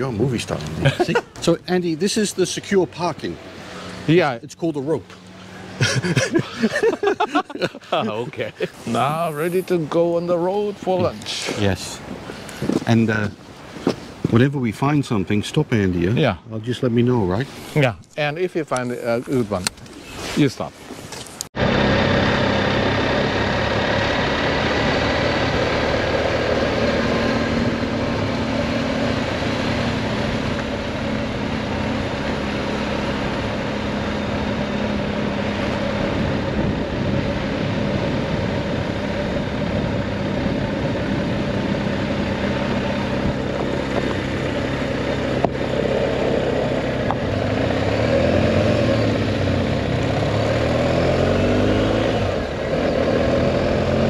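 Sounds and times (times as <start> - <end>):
wind and road noise: 0.0 - 54.0
motorcycle engine running: 21.6 - 54.0.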